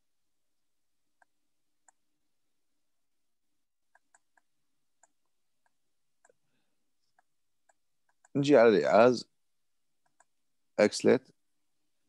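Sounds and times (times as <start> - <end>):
computer mouse clicks: 1.2 - 2.1, 3.9 - 6.4, 7.0 - 8.4, 10.0 - 10.4.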